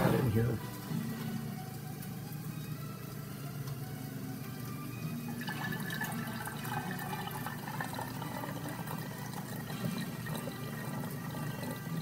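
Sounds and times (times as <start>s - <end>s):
juice pouring into glass bottle: 4.6s - 12.0s.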